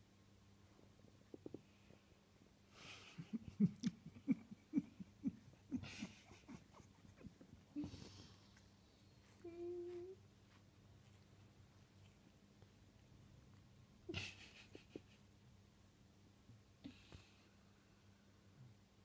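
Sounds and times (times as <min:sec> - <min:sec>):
pet whining: 0:04.7 - 0:14.3.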